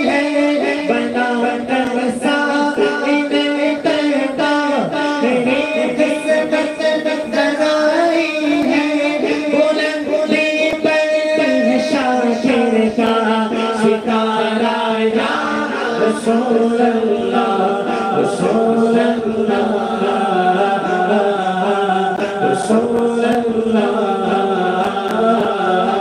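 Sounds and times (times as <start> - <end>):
man singing into a microphone: 0.0 - 26.0.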